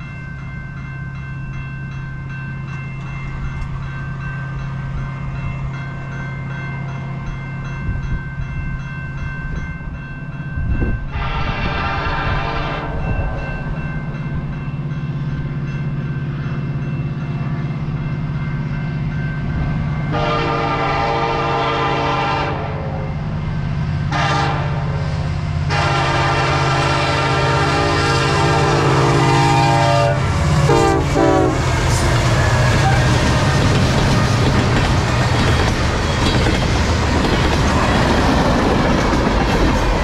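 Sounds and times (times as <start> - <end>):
train horn blasts: 11.0 - 13.4, 20.1 - 23.2, 24.0 - 33.7.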